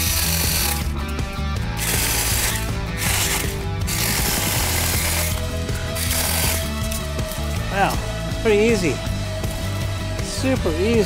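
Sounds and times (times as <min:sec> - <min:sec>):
mini chainsaw cutting branches: 0:00.0 - 0:01.0, 0:01.7 - 0:07.5.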